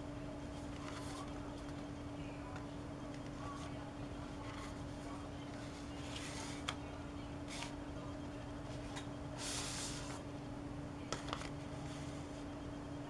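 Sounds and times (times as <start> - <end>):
faint hum: 0.0 - 13.0
paper sliding rustle: 0.7 - 1.4, 4.4 - 6.8, 7.5 - 7.7, 9.4 - 10.2.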